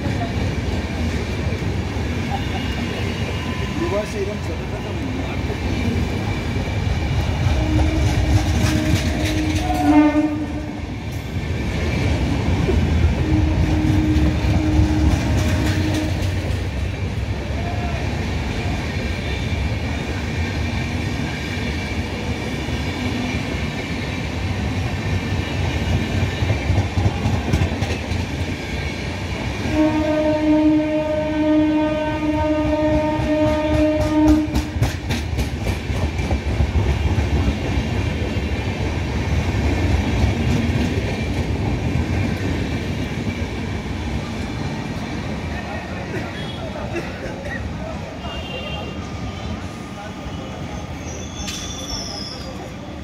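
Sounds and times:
train wheels rumbling on rails: 0:00.0 - 0:53.0
train horn: 0:07.4 - 0:10.8, 0:13.2 - 0:16.4, 0:29.6 - 0:34.8, 0:48.2 - 0:49.1.

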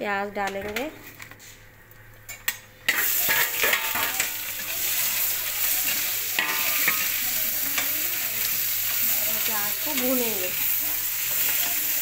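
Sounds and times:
onions sizzling in oil: 0:01.7 - 0:12.0
spatula scraping pan: 0:02.9 - 0:12.0.

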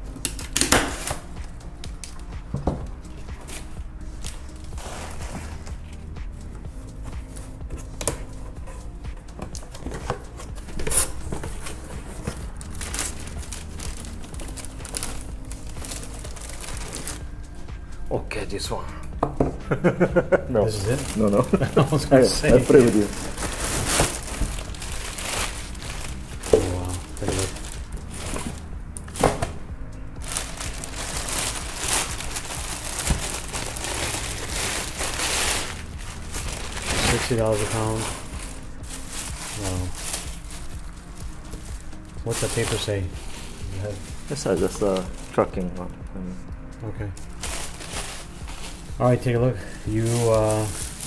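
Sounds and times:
plastic bag rustling: 0:09.9 - 0:17.4, 0:20.7 - 0:29.5, 0:30.2 - 0:45.4, 0:47.2 - 0:51.0.

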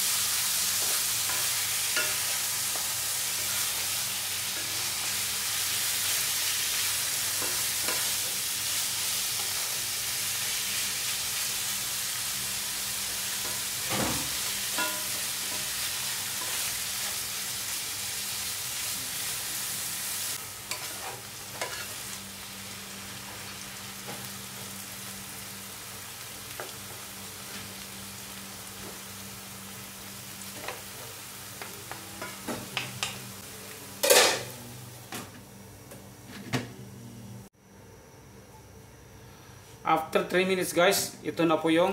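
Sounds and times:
meat sizzling in a wok: 0:00.0 - 0:35.2.

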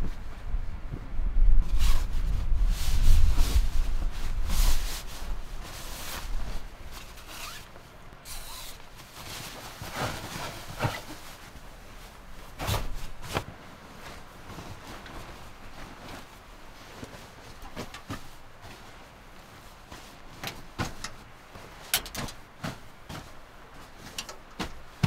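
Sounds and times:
low rumble: 0:00.0 - 0:05.7
nylon bedding rustling: 0:00.0 - 0:25.0.

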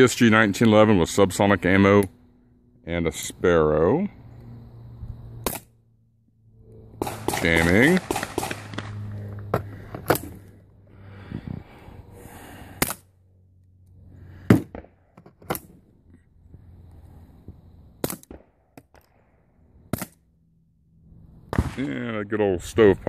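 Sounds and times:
suppressed pistol shots: 0:05.4 - 0:05.7, 0:07.0 - 0:09.1, 0:18.0 - 0:18.4.

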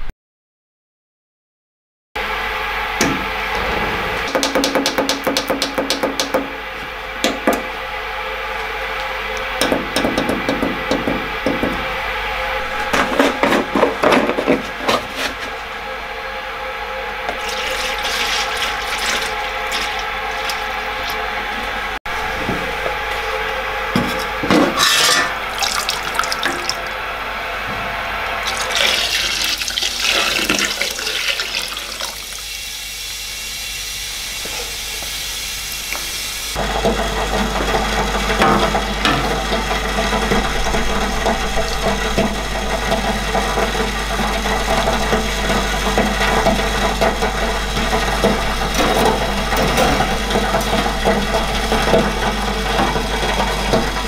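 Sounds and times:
ultrasonic cleaner buzzing hum: 0:02.2 - 0:54.0
liquid pouring into metal tank: 0:17.3 - 0:21.8, 0:24.2 - 0:27.0, 0:28.4 - 0:32.7.

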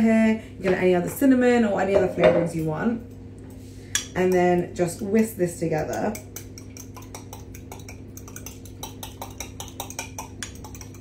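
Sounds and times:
fork whisking clinking against glass: 0:05.9 - 0:11.0.

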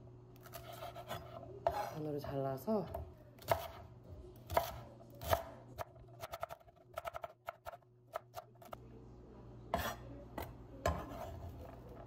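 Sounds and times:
knife chopping on wooden board: 0:02.9 - 0:03.9.

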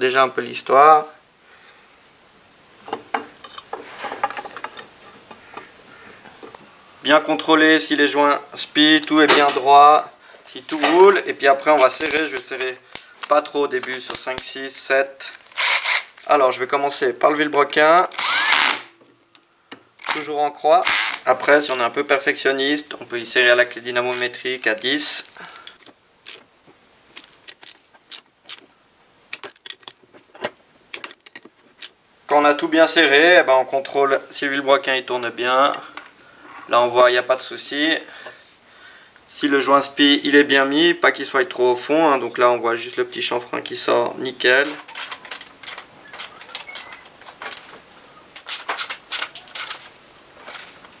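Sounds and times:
ratchet wrench clicking: 0:15.6 - 0:16.2, 0:18.2 - 0:18.8, 0:20.8 - 0:21.3
metal parts clicking and knocking: 0:27.4 - 0:28.7, 0:29.3 - 0:32.0, 0:44.6 - 0:47.7, 0:48.4 - 0:50.7.

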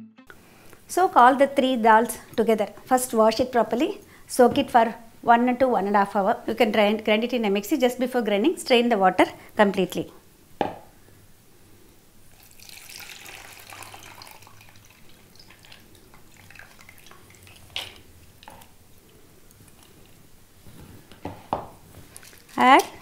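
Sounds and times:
water trickling and dripping: 0:12.3 - 0:18.5.

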